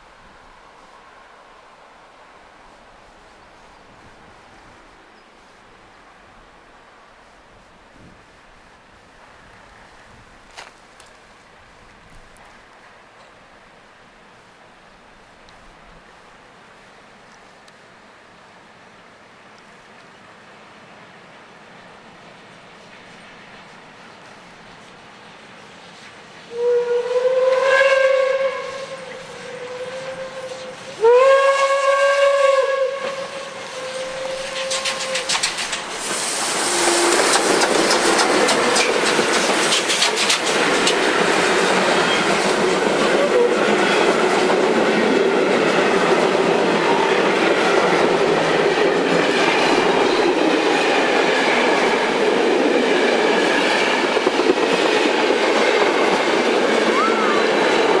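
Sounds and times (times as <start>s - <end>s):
steam whistle blast: 26.5s - 35.4s, 36.4s - 37.4s, 43.2s - 43.7s, 56.8s - 58.0s
train wheels clattering on rails: 33.0s - 57.0s.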